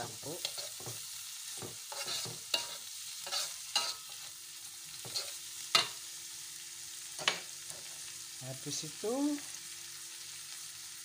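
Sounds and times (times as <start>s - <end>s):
metal spatula scraping a wok: 0.0s - 6.0s
food sizzling: 0.0s - 11.0s.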